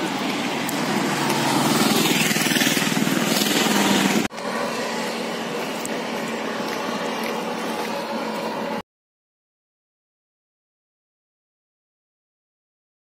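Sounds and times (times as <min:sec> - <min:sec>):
road noise: 0:00.0 - 0:08.8
vehicle engine passing: 0:00.0 - 0:08.8.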